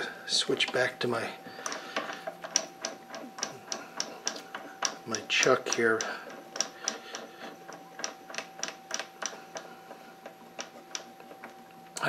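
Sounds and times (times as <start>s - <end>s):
faint steady hum: 0.0s - 12.0s
metal tooling clicks and taps: 1.6s - 9.7s.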